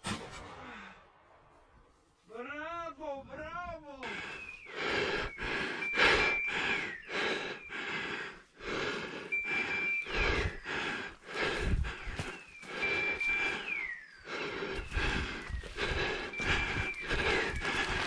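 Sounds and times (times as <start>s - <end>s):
heavy breathing: 4.0s - 18.0s.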